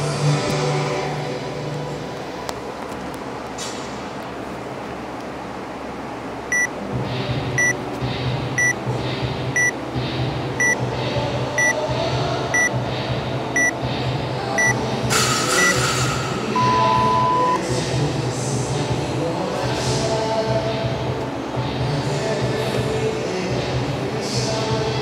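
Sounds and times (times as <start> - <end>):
background music with steady beat: 6.4 - 25.0
long low timer beep: 6.5 - 6.7, 7.6 - 7.8, 8.6 - 8.8, 9.6 - 9.8, 10.6 - 10.8, 11.6 - 11.8, 12.5 - 12.8, 13.6 - 13.8, 14.6 - 14.8, 15.5 - 15.8, 16.6 - 17.6
short high timer beeps: 6.5 - 6.7, 8.6 - 8.8, 9.6 - 9.8, 10.6 - 10.8, 11.6 - 11.8, 13.6 - 13.8, 15.5 - 15.8, 16.6 - 17.6.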